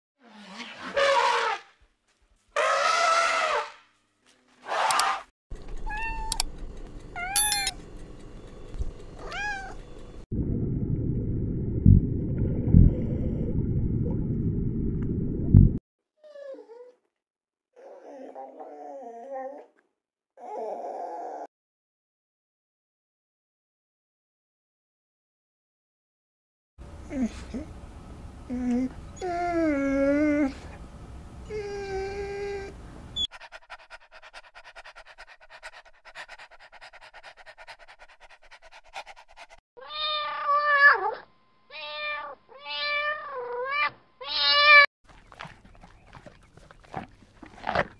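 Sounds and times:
dog whining: 7.2 - 7.7, 17.8 - 19.8, 20.4 - 21.5, 28.5 - 30.8, 31.4 - 33.3
underwater rumble: 10.3 - 15.8
dog panting: 33.2 - 39.6.

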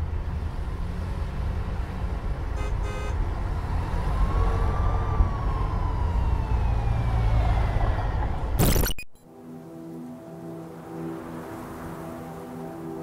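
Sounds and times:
city traffic rumble: 0.0 - 8.8, 9.4 - 13.0
car horn blast: 2.6 - 3.2
emergency vehicle siren: 3.3 - 8.6.

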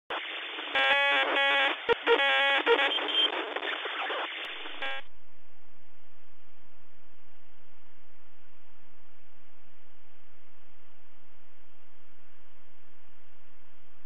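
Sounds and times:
glitchy electronic tones: 0.1 - 5.1.

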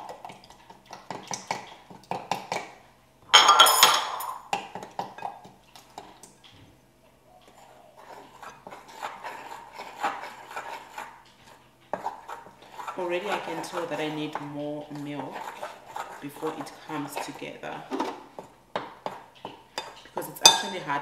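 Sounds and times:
utensil scraping glass bowl: 7.5 - 21.0.

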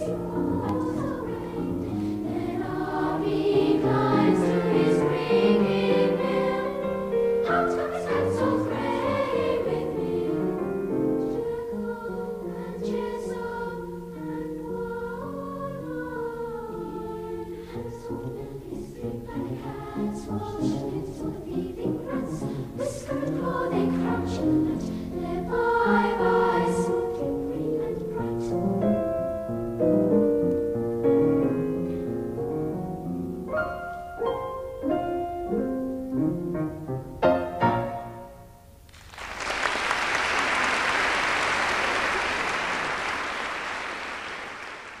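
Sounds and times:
youth choir singing: 0.0 - 29.0
applause: 38.9 - 45.0.

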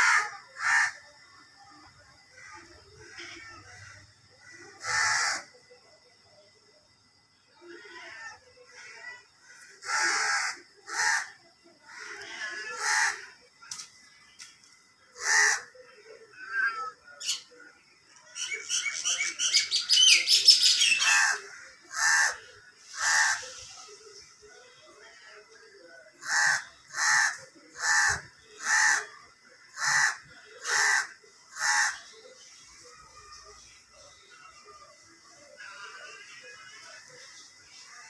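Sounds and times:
crow cawing: 0.0 - 1.0, 4.8 - 5.5, 9.5 - 13.3, 15.2 - 15.8, 20.6 - 23.6, 26.2 - 32.2.

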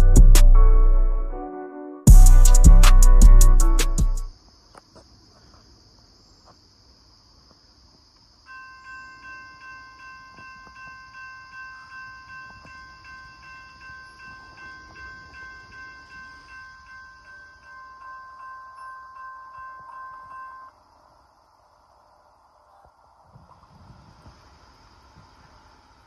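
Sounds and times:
insects buzzing: 2.1 - 26.0
crossing warning bell ringing: 8.5 - 20.8.

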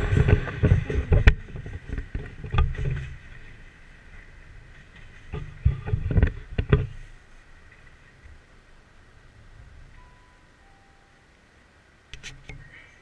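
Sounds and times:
wind buffeting microphone: 0.0 - 10.0
diesel train rumbling: 0.0 - 13.0.

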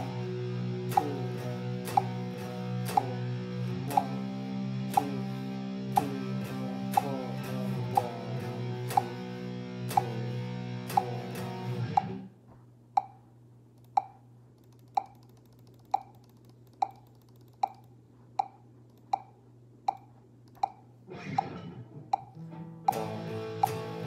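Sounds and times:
distorted electric guitar chords: 0.0 - 12.3, 21.1 - 24.0
amp hum: 0.0 - 24.0.

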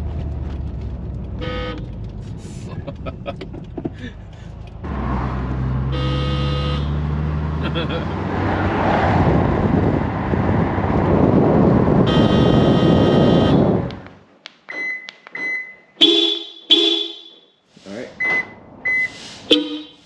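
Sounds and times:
road noise inside moving car: 0.0 - 14.2
car horn blasts: 1.4 - 1.8, 5.8 - 7.0, 12.0 - 13.9, 16.0 - 17.5, 19.5 - 20.0
loud car horn blast: 1.4 - 1.8, 5.8 - 7.0, 12.0 - 13.9, 16.0 - 17.4, 19.5 - 20.0
short high beeps: 18.2 - 19.9.

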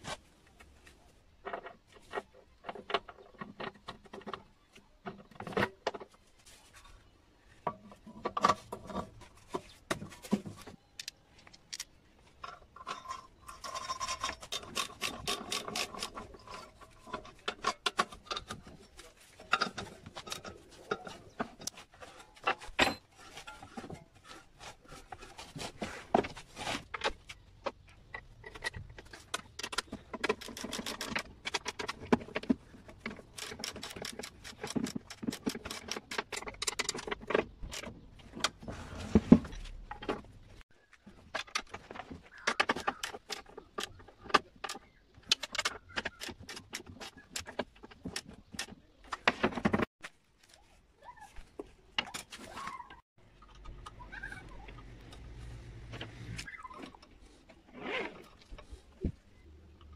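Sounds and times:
metal parts knocking and clicking: 9.9 - 24.1, 26.9 - 38.6, 41.1 - 49.9.

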